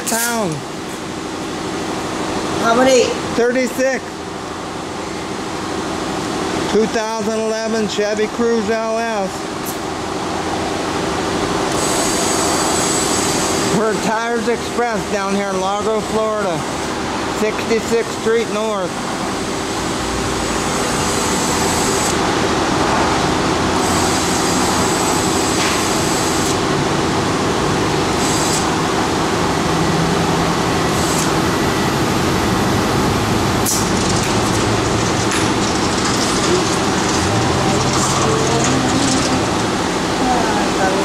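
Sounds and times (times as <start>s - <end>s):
loud background rush: 4.0s - 41.0s
compressed air hissing: 11.8s - 13.7s, 28.1s - 28.7s.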